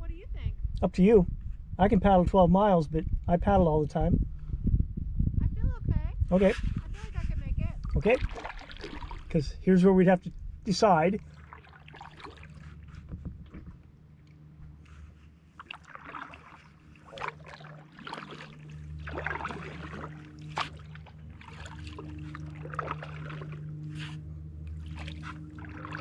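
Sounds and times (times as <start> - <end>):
paddle splashing in water: 7.7 - 9.4, 10.8 - 26.0.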